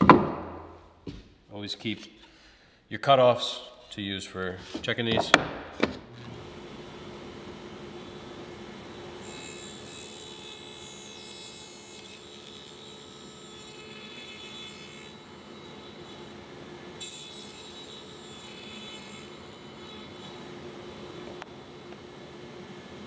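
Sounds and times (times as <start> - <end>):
table saw humming: 4.7 - 23.0
table saw cutting wood: 5.2 - 23.0.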